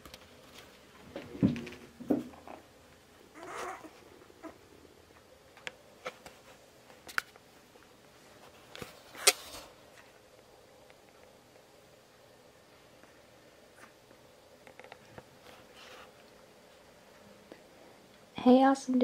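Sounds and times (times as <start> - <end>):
soft puppy noise: 3.3 - 5.3.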